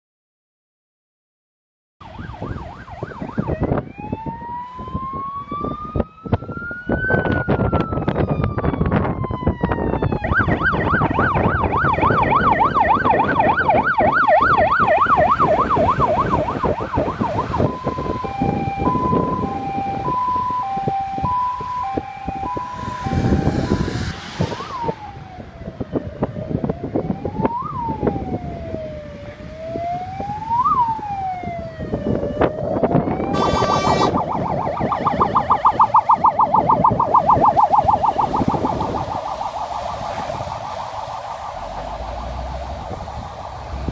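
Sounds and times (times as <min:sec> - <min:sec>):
emergency vehicle sirens: 0:02.0 - 0:43.9
diesel engine noise: 0:22.0 - 0:26.8, 0:33.3 - 0:43.9.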